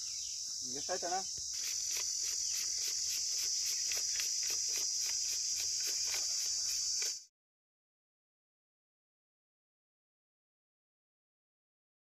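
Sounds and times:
insects droning: 0.0 - 7.3.

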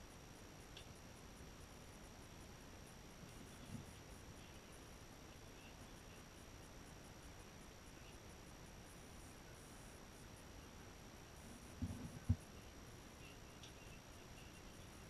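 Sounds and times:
faint high whine: 0.0 - 15.0
steady hiss: 0.0 - 15.0
soft low thump: 11.8 - 12.5.

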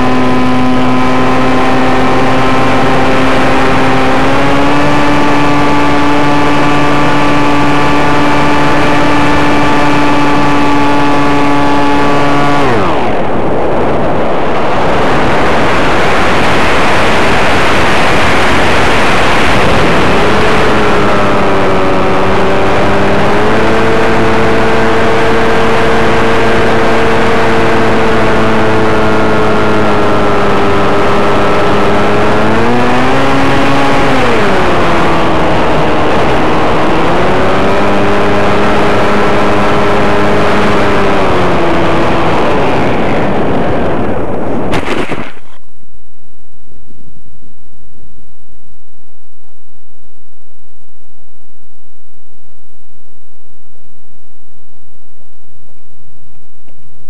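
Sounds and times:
electric motor and propeller whine: 0.0 - 45.7
rushing air noise: 4.2 - 28.1.

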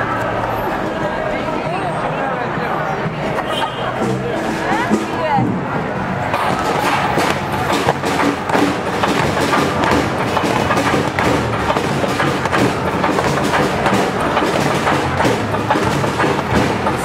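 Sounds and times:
music with heavy steady beat: 6.3 - 17.0.

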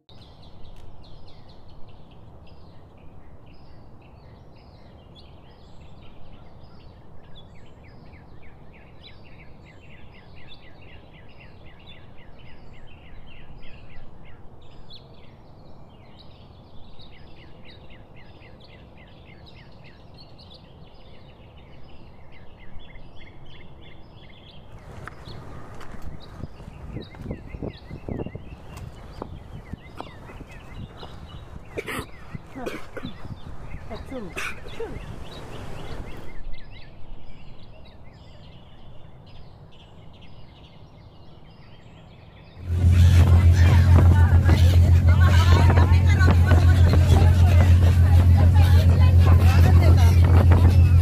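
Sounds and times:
birds chirping: 0.0 - 51.0
low background rumble: 42.6 - 51.0.

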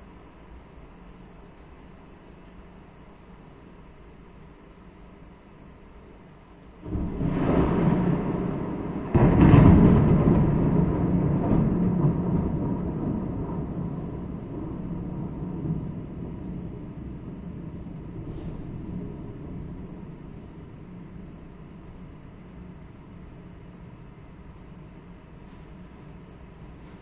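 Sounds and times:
thunder crack: 6.8 - 23.6
thunder clap: 6.8 - 23.7
low thunder rumble: 6.8 - 27.0.

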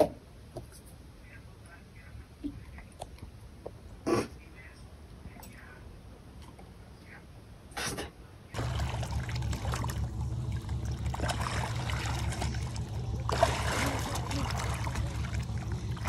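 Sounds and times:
steady low rumble: 8.5 - 16.0
water splashing against boat: 8.6 - 16.0.

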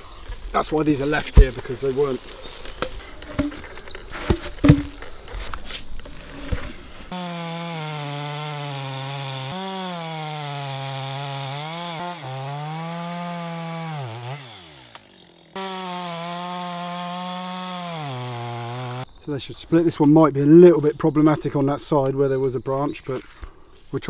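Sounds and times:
knocks and handling sounds: 2.5 - 7.1
chainsaw cutting a log: 7.1 - 19.0.

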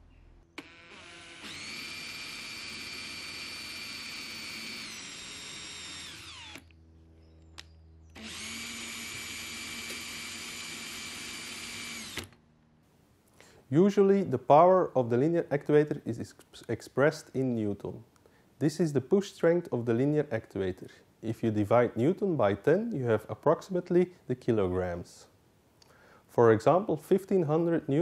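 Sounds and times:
cordless drill whining: 0.5 - 12.4.

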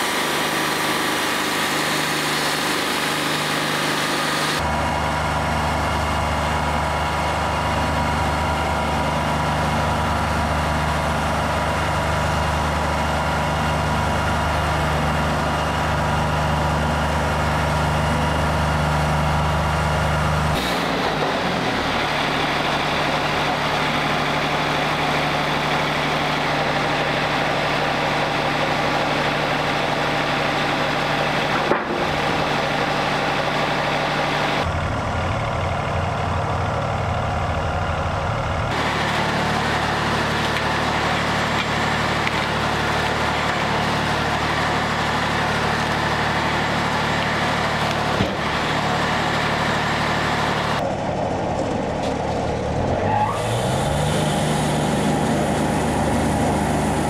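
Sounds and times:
band blade cutting log: 0.0 - 4.6
sawmill diesel engine droning: 0.0 - 57.0.

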